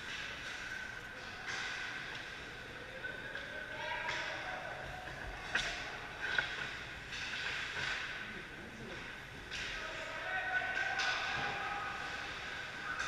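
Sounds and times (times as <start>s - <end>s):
hockey stick cracks: 10.7s - 11.4s.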